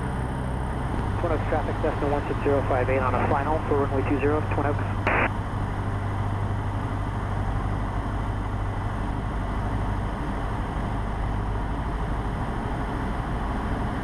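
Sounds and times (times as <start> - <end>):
airplane engine and propeller droning: 0.0 - 14.0.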